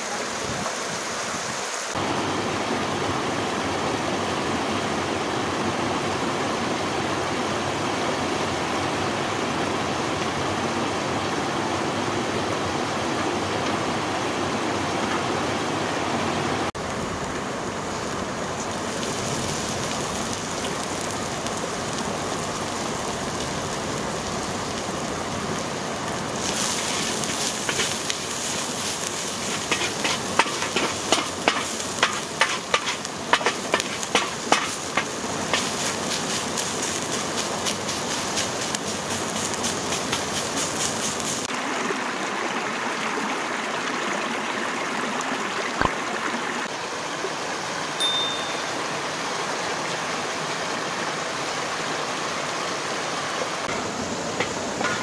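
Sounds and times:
stream rushing: 0:00.0 - 0:55.0
herbs sizzling in pan: 0:16.8 - 0:41.5, 0:53.6 - 0:55.0
wooden spatula scraping pan: 0:29.5 - 0:34.8.

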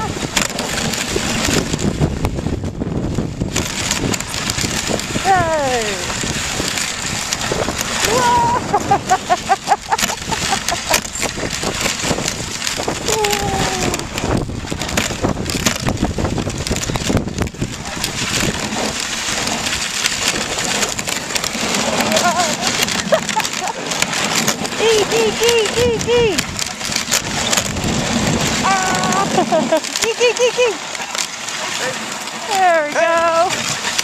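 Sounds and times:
sled knocking and rattling: 0:00.0 - 0:34.0
sled runners scraping on snow: 0:00.0 - 0:34.0
person calling out: 0:05.2 - 0:06.1, 0:08.0 - 0:08.7, 0:13.0 - 0:14.2, 0:24.8 - 0:26.4, 0:28.6 - 0:29.4.

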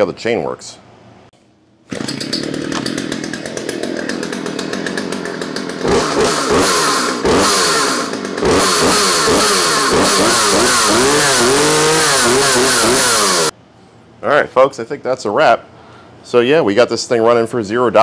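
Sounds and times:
chainsaw revving: 0:01.9 - 0:13.6.

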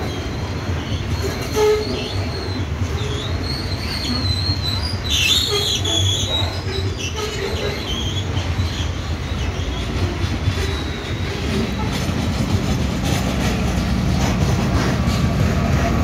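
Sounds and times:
train wheels rumbling on rail: 0:00.0 - 0:16.0
high-pitched wheel squeal: 0:00.1 - 0:12.0.

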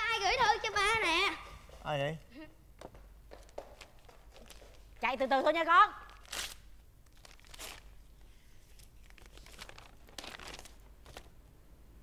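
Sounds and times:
envelope tearing: 0:06.0 - 0:08.1, 0:08.8 - 0:11.3
paper rustling and crinkling: 0:06.0 - 0:11.4.

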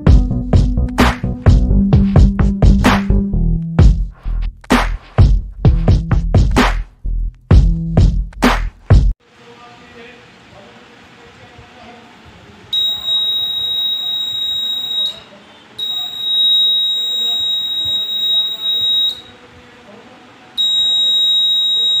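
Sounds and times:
piezo buzzer beeping: 0:12.8 - 0:19.4, 0:20.6 - 0:22.0.

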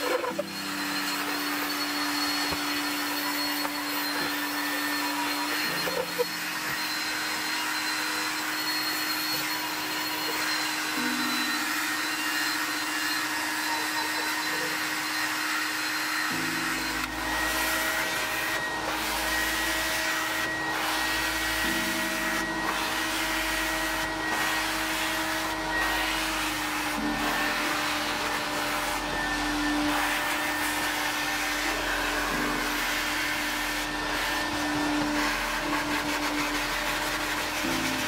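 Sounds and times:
drill brush scrubbing carpet: 0:00.0 - 0:38.0
vacuum motor running: 0:00.0 - 0:38.0
extractor wand on wet carpet: 0:17.2 - 0:38.0.

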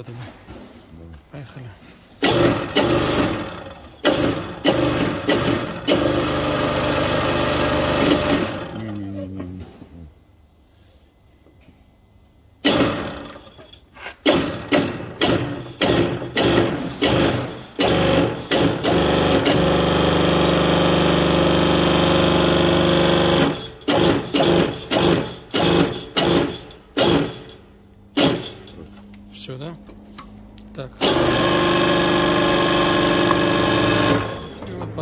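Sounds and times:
press pump running: 0:02.2 - 0:09.2, 0:12.6 - 0:27.6, 0:28.2 - 0:28.9, 0:31.0 - 0:35.0.

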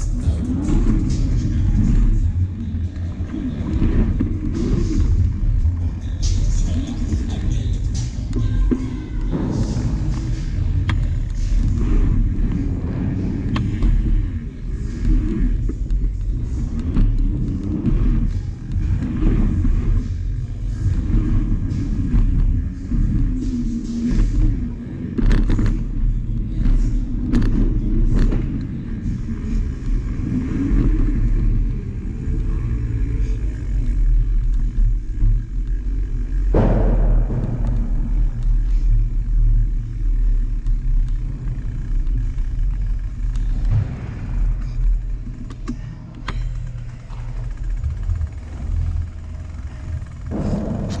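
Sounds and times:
bicycle tyres rolling: 0:00.0 - 0:51.0
sharp knocks: 0:36.6 - 0:39.4.

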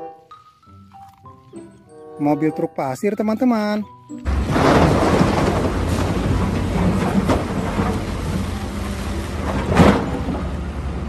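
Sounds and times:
heavy truck engine rumbling: 0:04.2 - 0:11.0.

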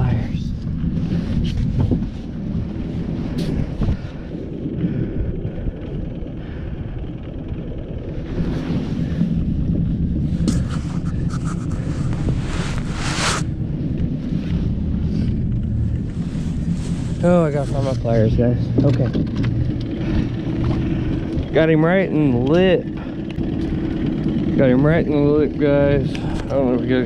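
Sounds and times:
low rumble: 0:00.0 - 0:27.0
fabric rustling on microphone: 0:10.2 - 0:13.5, 0:16.1 - 0:18.2.

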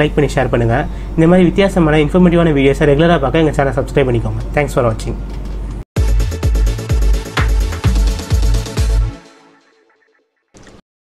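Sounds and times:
heavy kick drum: 0:06.0 - 0:09.3
electronic dance music: 0:06.0 - 0:10.2.

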